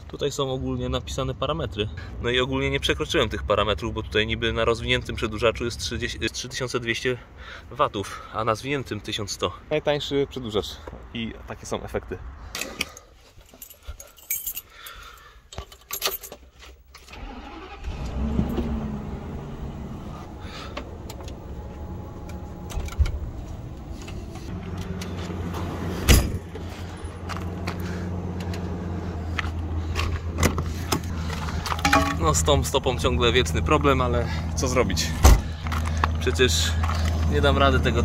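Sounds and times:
keys jangling: 0:12.6 - 0:16.6
engine starting and idling: 0:17.0 - 0:22.8.

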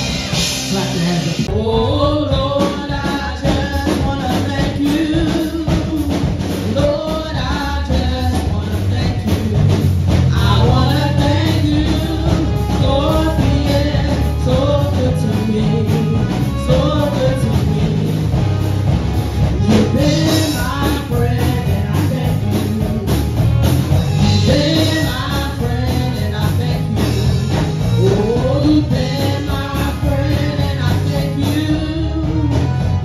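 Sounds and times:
voices singing: 0:00.0 - 0:18.9, 0:19.5 - 0:33.0
worship band playing rock song: 0:00.0 - 0:33.0.

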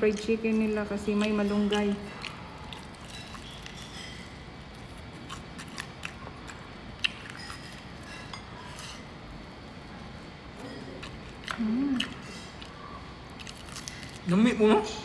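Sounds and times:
fried chicken crunching: 0:11.0 - 0:14.4.

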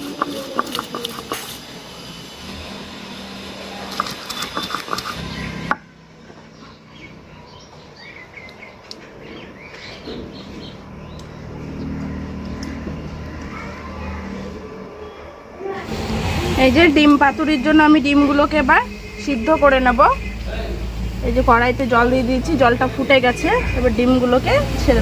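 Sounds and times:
stone roller grinding on stone slab: 0:00.0 - 0:01.7, 0:03.7 - 0:05.8
birds chirping: 0:00.0 - 0:02.4, 0:03.6 - 0:15.8, 0:16.5 - 0:25.0.

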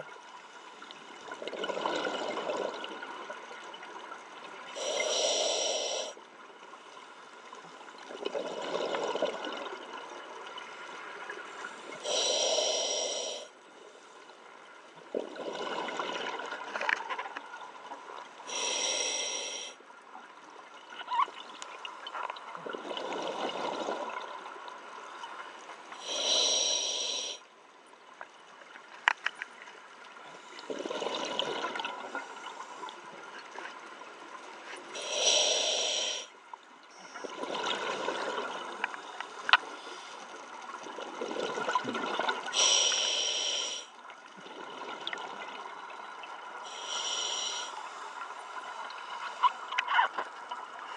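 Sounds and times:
hissing regulator inhalation: 0:12.1 - 0:13.5, 0:18.5 - 0:19.8, 0:26.0 - 0:27.4, 0:35.0 - 0:36.3, 0:42.6 - 0:43.9, 0:46.7 - 0:47.8
gurgling exhaled bubbles: 0:30.6 - 0:32.2, 0:40.8 - 0:42.6.

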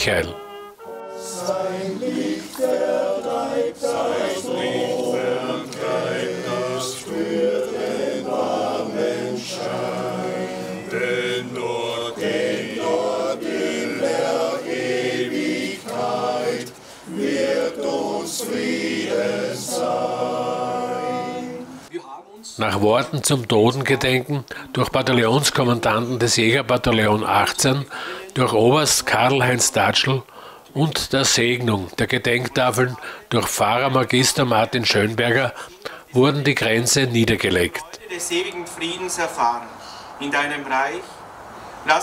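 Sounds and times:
men's choir singing unaccompanied: 0:00.8 - 0:21.9.

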